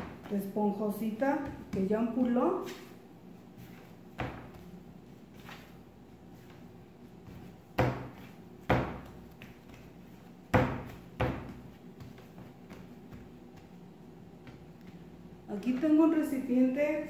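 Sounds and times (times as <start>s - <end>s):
dough thumping on table: 0.0s - 0.5s, 1.2s - 2.9s, 4.1s - 4.7s, 7.2s - 13.8s.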